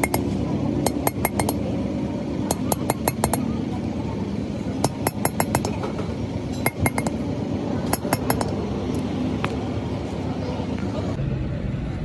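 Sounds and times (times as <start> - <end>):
metal tool tapping metal: 0.0 - 1.6, 2.5 - 3.5, 4.8 - 7.2, 7.8 - 8.6
low background rumble: 0.0 - 12.0.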